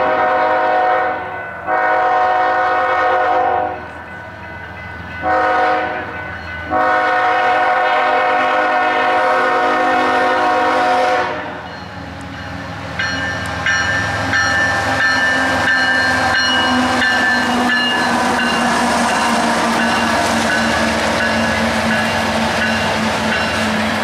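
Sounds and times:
locomotive air horn: 0.0s - 3.9s, 5.2s - 6.1s, 6.7s - 11.6s
second locomotive horn: 0.0s - 3.9s, 5.2s - 6.1s, 6.7s - 11.6s
passing train rumble: 0.0s - 24.0s.

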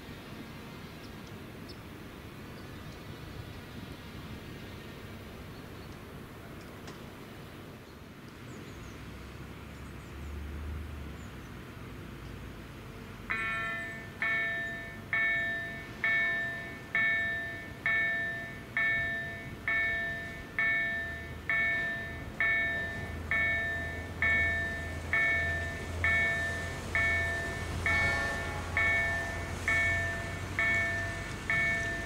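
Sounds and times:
level crossing warning bell: 13.3s - 32.0s.

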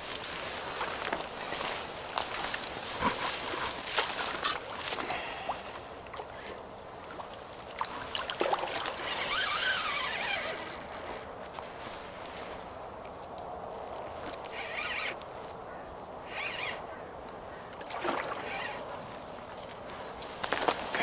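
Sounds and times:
dry reeds rustling and crackling: 0.0s - 6.0s, 6.9s - 15.7s, 18.4s - 21.0s
fishing rod and reel handling: 0.1s - 5.8s, 7.0s - 15.3s, 18.2s - 21.0s.

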